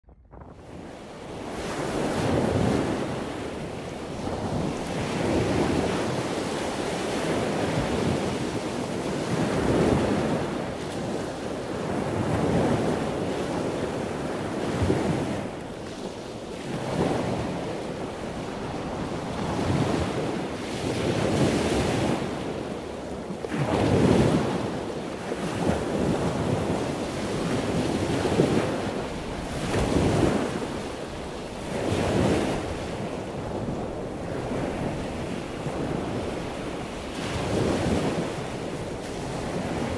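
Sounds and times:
wind blowing across microphone: 0:00.0 - 0:39.9.

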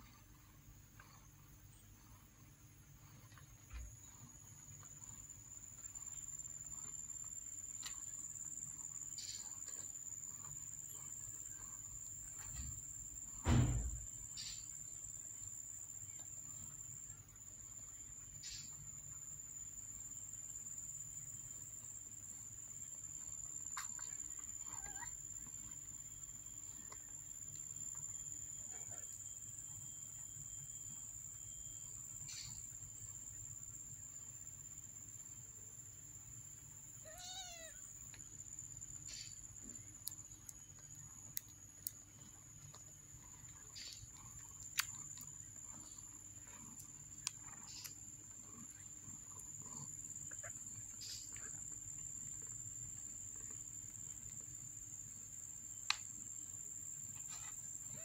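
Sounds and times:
thump: 0:13.4 - 0:14.2.

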